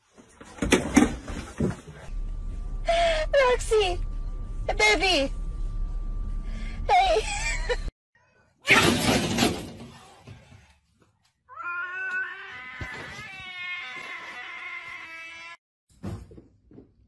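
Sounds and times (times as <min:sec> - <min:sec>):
cat yowling: 0:11.5 - 0:15.6.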